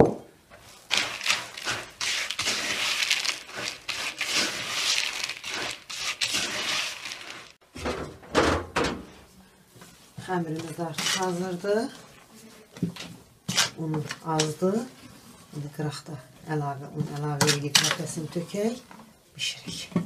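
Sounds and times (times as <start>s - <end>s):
spoon scraping in plastic tub: 0.6s - 7.6s, 10.5s - 12.1s, 12.9s - 15.4s.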